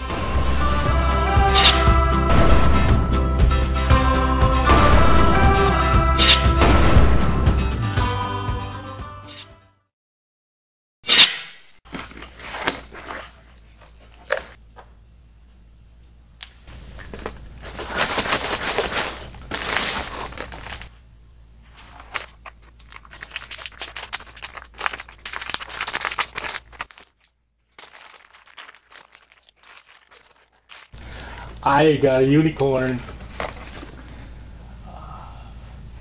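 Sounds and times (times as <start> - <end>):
plastic packaging crinkling: 16.7 - 21.0, 21.7 - 31.6, 32.8 - 34.0
packing tape tearing: 17.0 - 20.9, 21.8 - 31.0.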